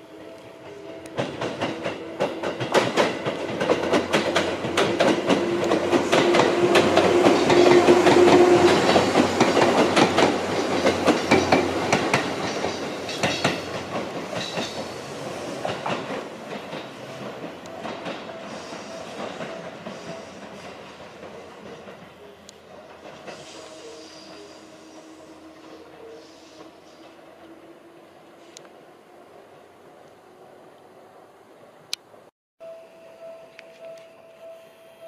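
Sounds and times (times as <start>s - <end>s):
electric train passing: 0.0s - 35.0s
wheels clacking over rail joints: 0.9s - 23.5s.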